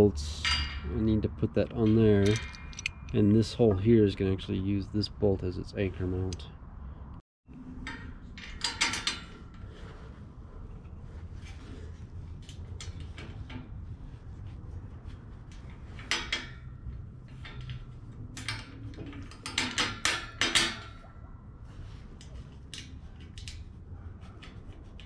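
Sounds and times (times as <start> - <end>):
metal grille clinking: 0.0 - 4.5, 15.0 - 25.0
metal clatter: 0.2 - 3.8, 15.0 - 25.0
metal clanks: 0.2 - 4.2, 7.8 - 10.0, 15.5 - 25.0.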